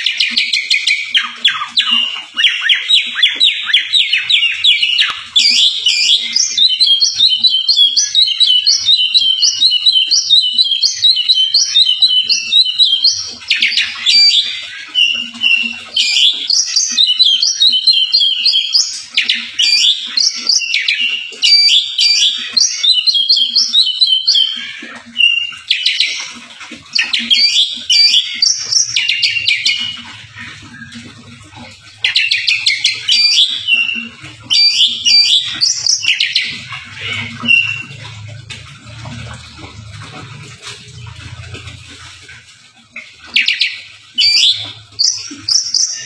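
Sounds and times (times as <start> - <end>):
bird singing whistles and trills: 0.0 - 24.6, 32.0 - 37.9, 43.3 - 46.0.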